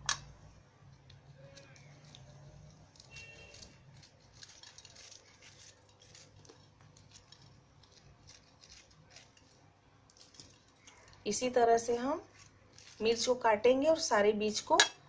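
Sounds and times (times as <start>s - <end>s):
knife cutting chillies: 1.2s - 10.6s, 11.8s - 13.4s.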